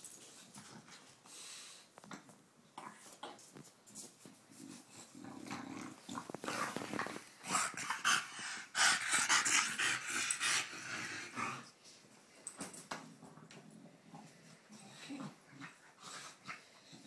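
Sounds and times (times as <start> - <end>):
dog growling: 4.7 - 11.7.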